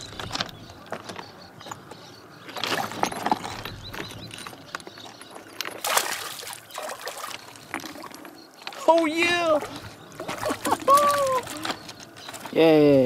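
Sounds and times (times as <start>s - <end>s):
fish splashing in water: 5.8s - 8.9s.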